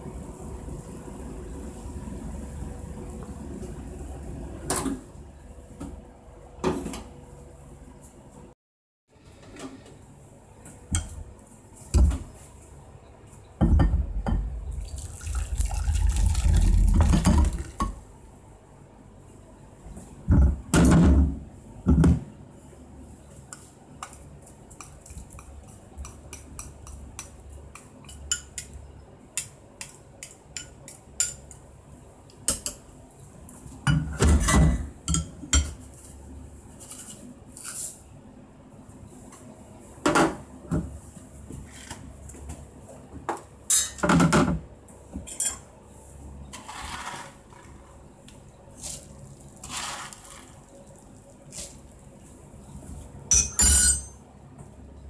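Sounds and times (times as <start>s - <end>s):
noodles and broth pouring into bowl: 14.8s - 17.8s, 48.8s - 51.6s.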